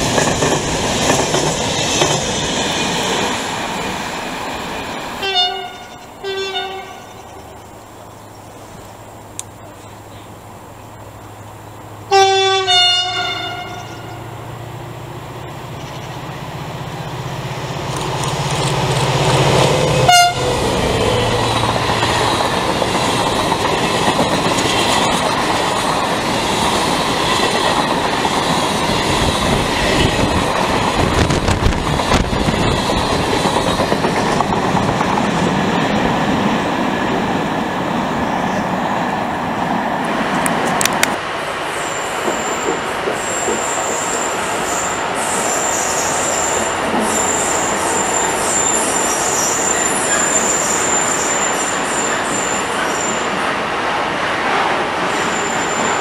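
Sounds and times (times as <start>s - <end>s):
locomotive horn blasts: 5.2s - 7.2s, 12.1s - 14.4s, 20.0s - 20.6s.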